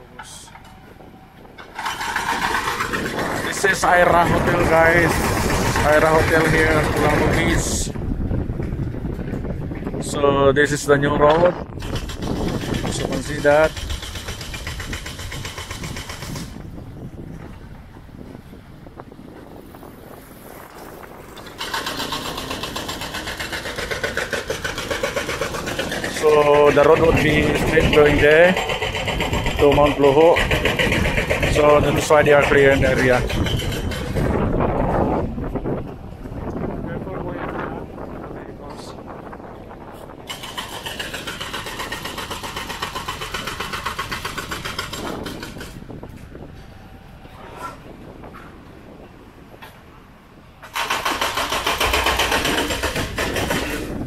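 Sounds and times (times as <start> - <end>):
excavator rattling: 0.0 - 10.1, 10.7 - 18.4, 20.5 - 36.7, 37.4 - 46.8, 50.5 - 54.0
wind rumble on microphone: 0.0 - 54.0
motor engine running: 1.7 - 9.9, 21.0 - 35.6, 40.2 - 46.2.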